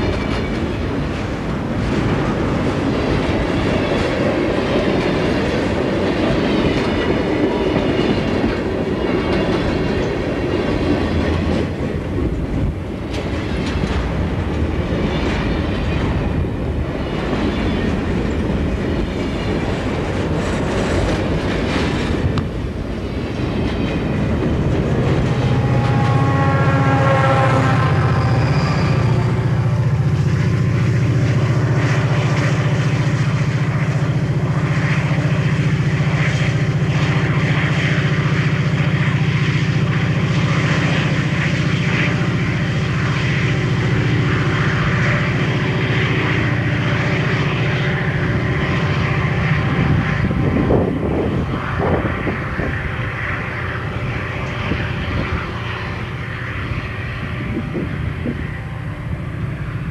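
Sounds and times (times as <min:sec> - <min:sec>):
train wheels clicking over rail joints: 0:00.0 - 0:26.4
diesel locomotive engine hum: 0:00.0 - 0:59.9.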